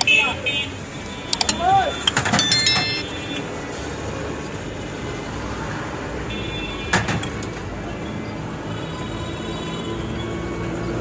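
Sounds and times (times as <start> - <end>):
street stall background noise: 0.0 - 11.0
faint ringing: 2.4 - 3.1.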